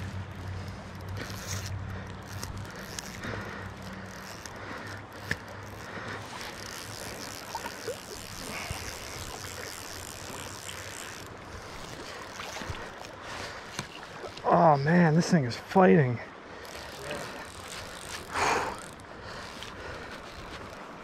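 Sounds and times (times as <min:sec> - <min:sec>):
flowing creek water: 0:00.0 - 0:21.0.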